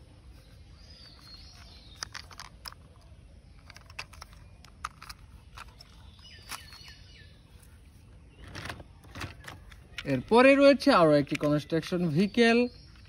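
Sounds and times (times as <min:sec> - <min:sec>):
faint bird chirps: 0:00.0 - 0:10.4
toy being handled clicks: 0:01.2 - 0:03.0, 0:03.6 - 0:06.8.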